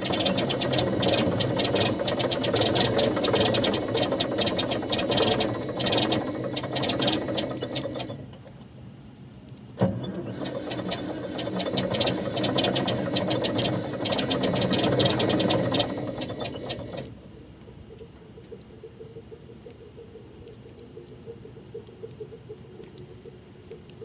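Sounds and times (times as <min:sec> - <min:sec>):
diesel engine clattering: 0:00.0 - 0:08.2, 0:09.9 - 0:17.1.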